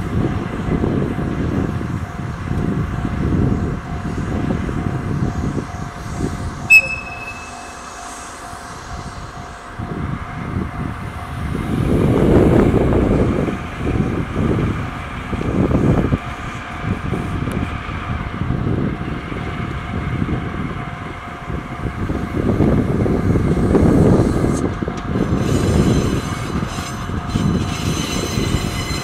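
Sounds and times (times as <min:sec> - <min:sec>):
locomotive whistle blast: 0:06.7 - 0:08.6.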